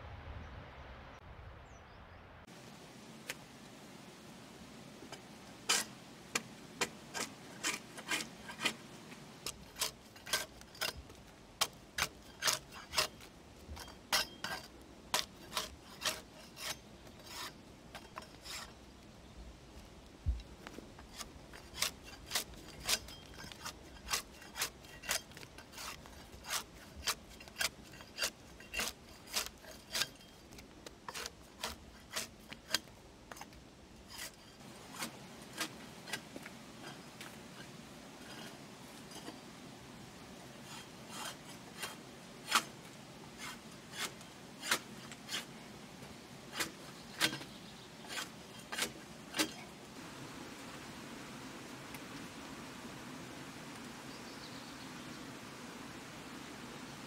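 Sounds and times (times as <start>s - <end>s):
tool scraping bark off log: 5.1s - 18.9s, 20.7s - 39.5s, 40.5s - 49.8s.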